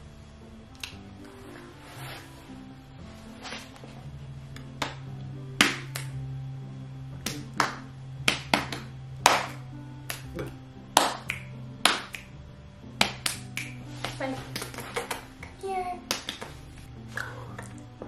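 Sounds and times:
quiet background music: 0:00.0 - 0:18.0
finger snaps: 0:00.7 - 0:01.0, 0:04.6 - 0:06.2, 0:07.2 - 0:12.4, 0:13.0 - 0:18.0
hand slaps: 0:04.6 - 0:06.2, 0:07.2 - 0:12.4, 0:13.0 - 0:16.8.

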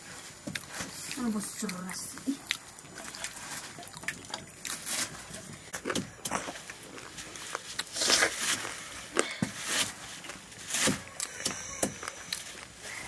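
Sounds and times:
leaves rustling: 0:02.6 - 0:05.7, 0:06.4 - 0:11.4.

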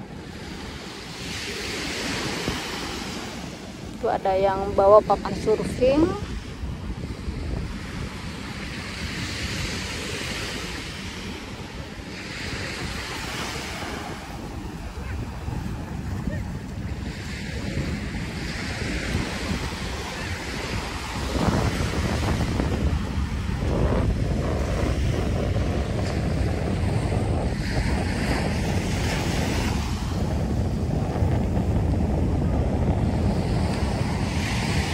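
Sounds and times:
sea waves breaking: 0:00.0 - 0:34.9
wind buffeting microphone: 0:00.0 - 0:34.9.

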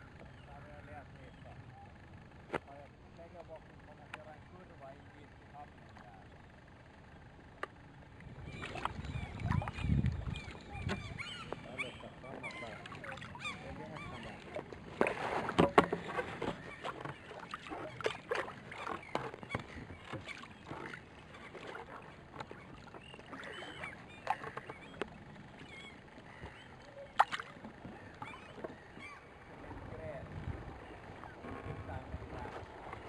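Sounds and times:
paddle strokes splashing in water: 0:08.2 - 0:29.2.

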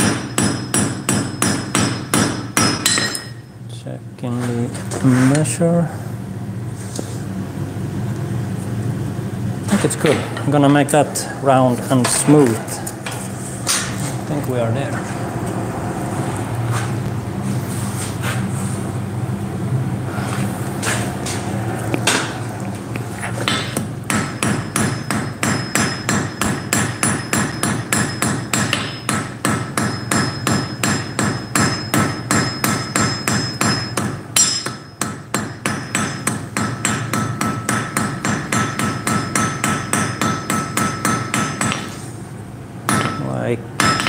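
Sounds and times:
anvil ringing: 0:00.0 - 0:03.5, 0:24.1 - 0:41.7, 0:42.9 - 0:44.0
hammer striking iron on anvil: 0:00.0 - 0:03.5, 0:23.4 - 0:42.0, 0:42.9 - 0:44.0.

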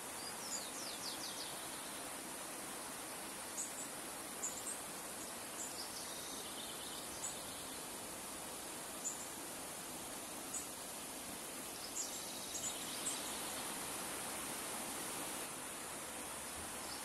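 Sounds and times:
river flowing over stones: 0:00.0 - 0:17.0
small birds calling: 0:03.4 - 0:07.9, 0:11.6 - 0:13.8.

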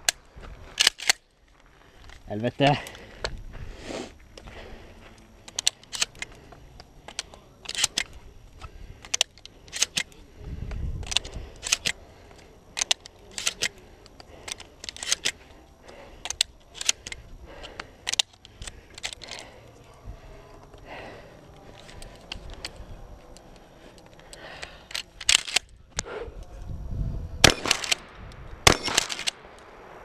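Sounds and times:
shotgun shells clicking into magazine: 0:00.8 - 0:01.2, 0:05.4 - 0:08.2, 0:09.0 - 0:10.2, 0:11.0 - 0:19.5, 0:21.8 - 0:25.7, 0:27.5 - 0:29.7.

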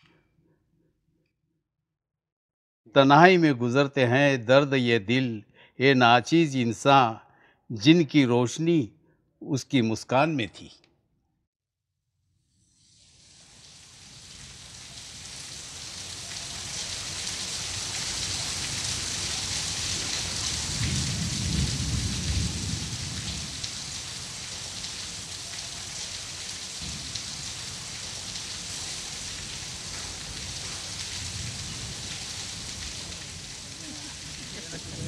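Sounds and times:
heavy rain pouring: 0:13.1 - 0:35.0.

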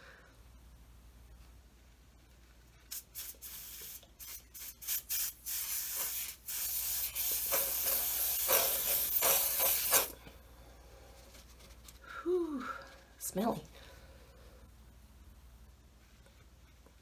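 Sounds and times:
aerosol spray hissing: 0:02.9 - 0:10.2.

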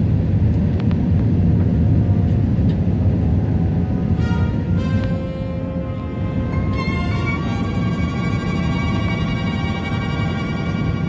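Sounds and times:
low rumble of engines and airflow: 0:00.0 - 0:11.0
steady ringing high tones: 0:06.0 - 0:11.0.

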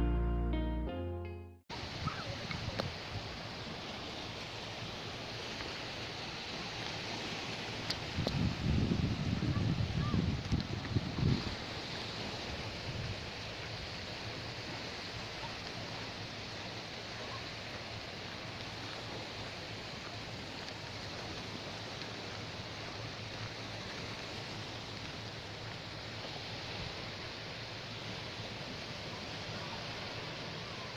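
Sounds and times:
gentle surf washing: 0:01.7 - 0:30.9
wind on microphone: 0:05.2 - 0:25.2.

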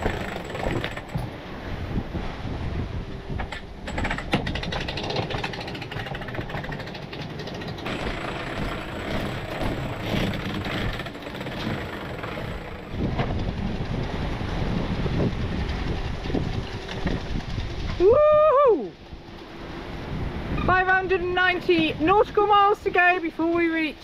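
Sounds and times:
winch clicking: 0:00.0 - 0:01.3, 0:03.6 - 0:14.1
wind and sea rushing: 0:00.0 - 0:24.0.

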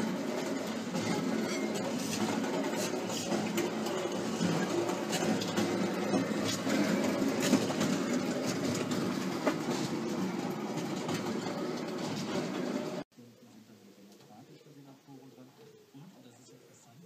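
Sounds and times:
roaster drum mechanical rumble: 0:00.0 - 0:13.0.

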